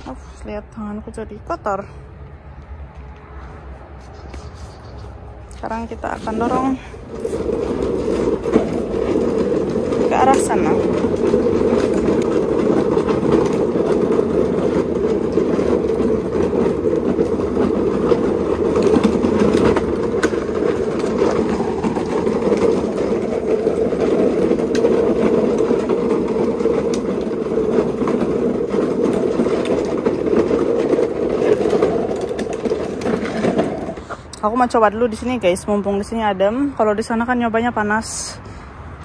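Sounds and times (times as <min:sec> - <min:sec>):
mower wheels rattling over ground: 0:04.8 - 0:36.0.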